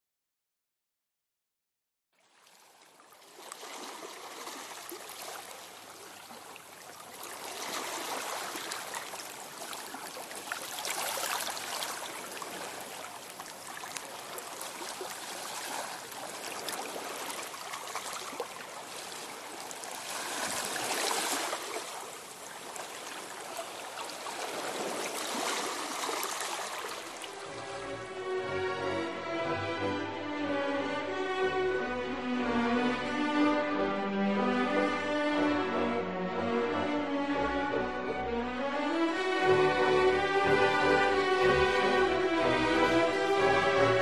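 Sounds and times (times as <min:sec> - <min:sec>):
stream running over stones: 0:02.3 - 0:27.6.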